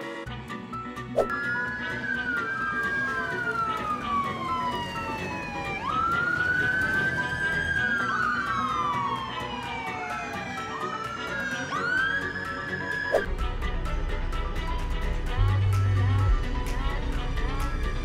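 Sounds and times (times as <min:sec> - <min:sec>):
police sirens wailing: 0:01.3 - 0:13.3.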